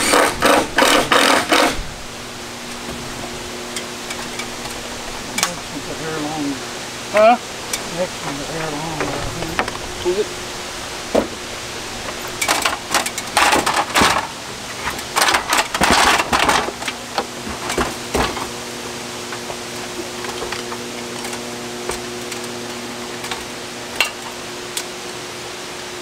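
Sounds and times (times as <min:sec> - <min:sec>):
wind noise: 0:00.0 - 0:18.6
low steady hum: 0:00.0 - 0:26.0.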